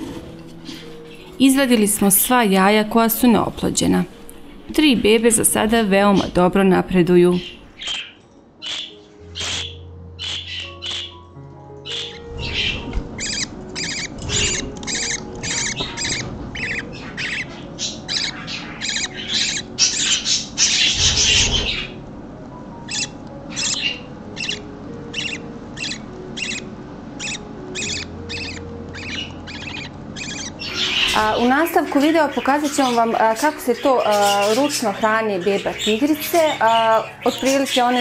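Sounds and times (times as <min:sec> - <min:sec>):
budgerigar chick cheeping: 0:11.9 - 0:21.7, 0:22.9 - 0:31.4.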